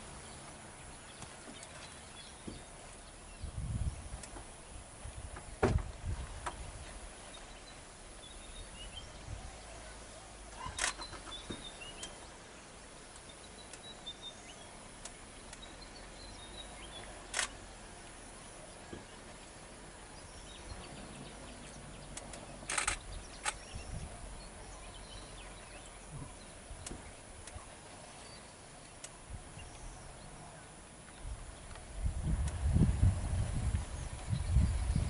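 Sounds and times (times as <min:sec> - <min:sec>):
low thuds: 0:03.5 - 0:06.8
sharp clicks: 0:10.8 - 0:12.2, 0:17.3 - 0:17.6, 0:22.0 - 0:23.7.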